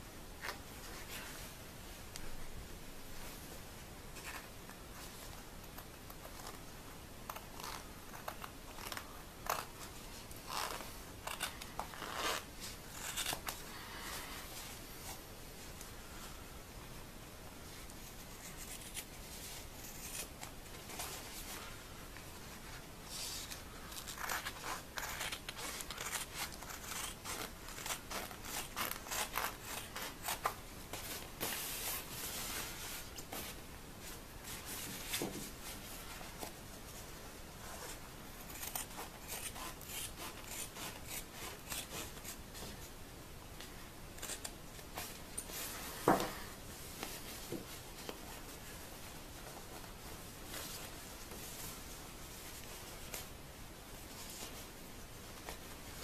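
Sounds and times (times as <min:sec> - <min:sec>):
fabric rubbing: 0:08.7 - 0:13.4
scissors snipping fabric: 0:38.5 - 0:42.4.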